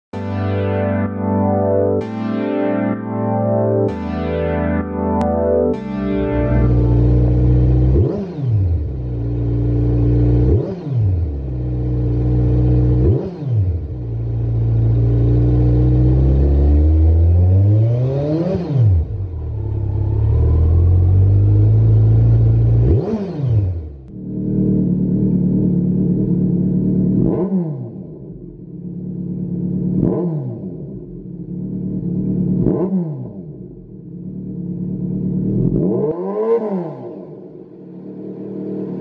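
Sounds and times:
motorcycle engine idling and revving: 5.2s - 39.0s.

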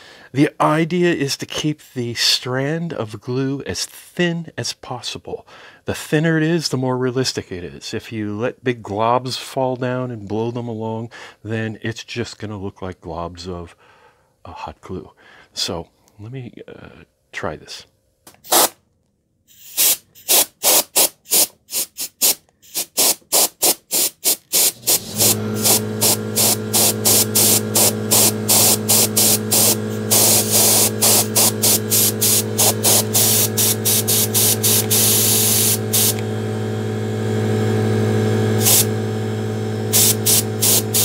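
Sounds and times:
glue gun clicking: 18.3s - 18.8s, 19.6s - 25.0s, 33.6s - 36.2s
electric air blower humming: 19.8s - 41.0s.

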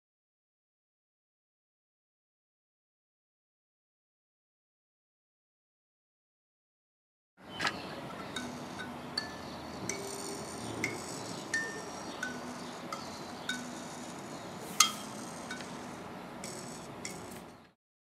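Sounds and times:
kalimba notes plucked: 8.2s - 14.2s.

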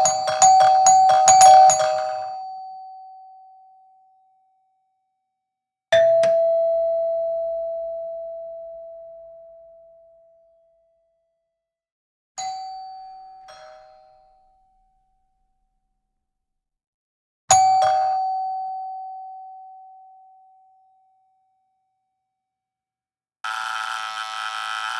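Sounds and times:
ding-dong doorbell chime: 0.0s - 3.6s, 12.4s - 14.4s
doorbell buzzer: 23.4s - 24.9s.

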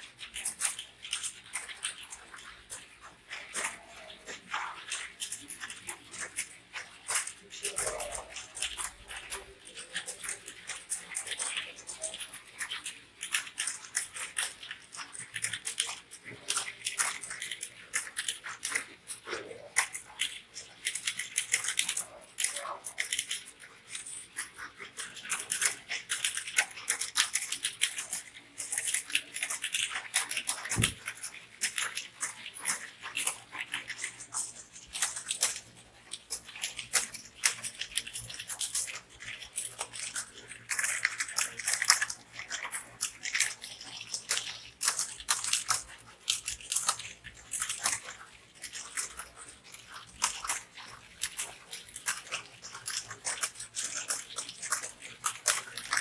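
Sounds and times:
keyboards typing clatter: 0.0s - 56.0s.

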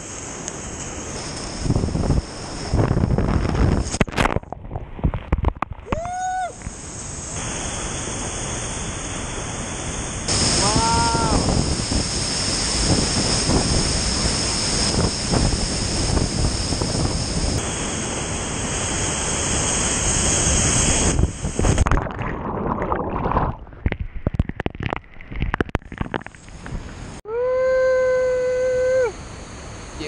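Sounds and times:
waterfall roar: 5.9s - 21.8s.

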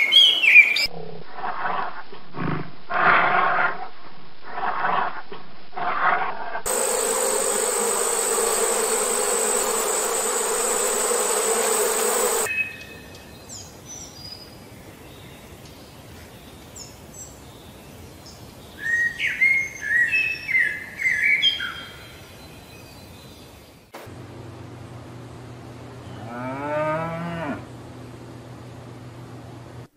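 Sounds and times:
bumblebee buzzing: 6.7s - 12.5s
birds chirping: 6.7s - 23.8s.

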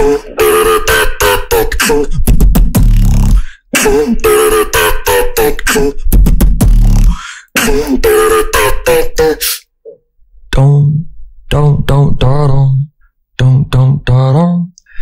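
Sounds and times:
person beatboxing: 0.0s - 9.7s.

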